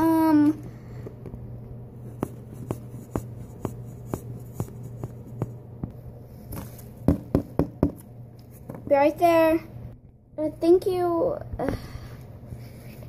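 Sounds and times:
steady low hum: 0:00.0 - 0:13.0
knocking on a door: 0:07.1 - 0:08.0.

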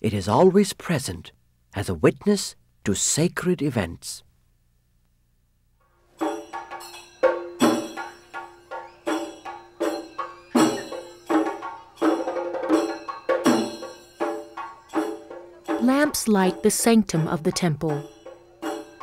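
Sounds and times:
sharp ringing percussion strikes: 0:06.1 - 0:19.0
deep drum beat: 0:10.5 - 0:19.0.

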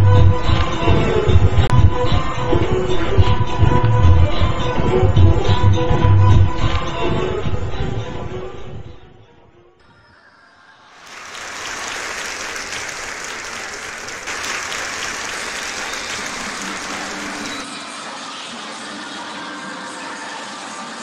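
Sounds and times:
audience applause: 0:11.0 - 0:17.6.

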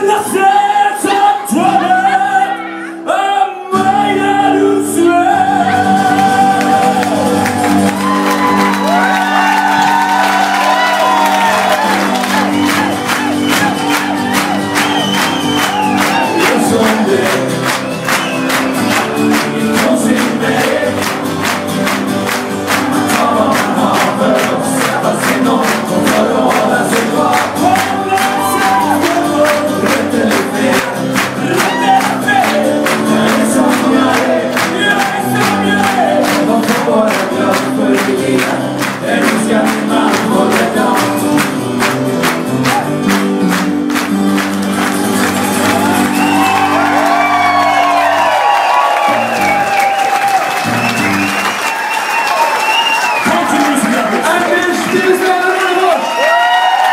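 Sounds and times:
person singing: 0:00.0 - 0:15.0, 0:15.6 - 0:42.0
acoustic guitar: 0:00.0 - 0:55.1.

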